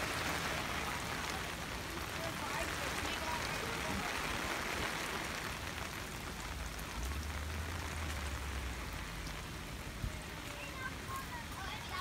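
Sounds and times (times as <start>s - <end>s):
rain on a camper and grass: 0.0s - 12.0s.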